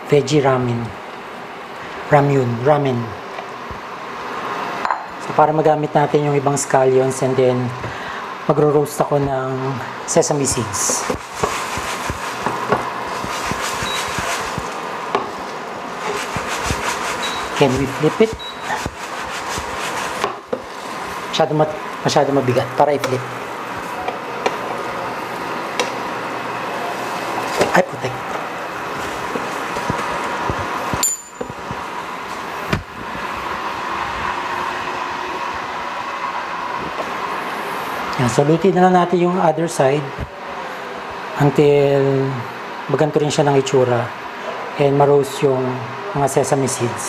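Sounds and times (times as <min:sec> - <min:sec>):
frying pan scraping on glass cooktop: 0:10.9 - 0:14.8, 0:15.9 - 0:21.1
ringing clink: 0:31.0 - 0:31.5.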